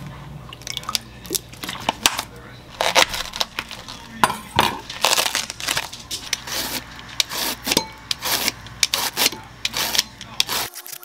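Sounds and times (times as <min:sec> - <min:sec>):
knife crunching through cabbage: 0:01.9 - 0:04.2, 0:04.8 - 0:11.0
slicer shredding cabbage: 0:02.8 - 0:04.1, 0:04.8 - 0:11.0.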